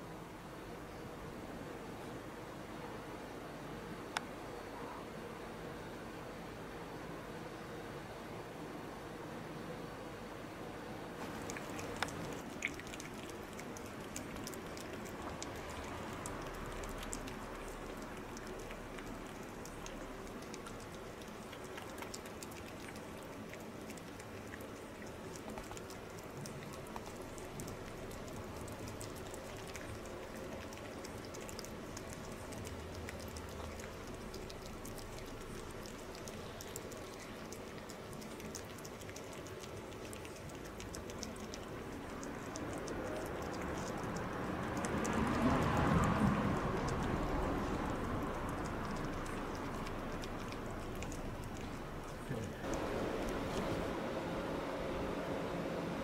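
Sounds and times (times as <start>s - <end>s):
cats crunching dry kibble: 11.2s - 53.9s.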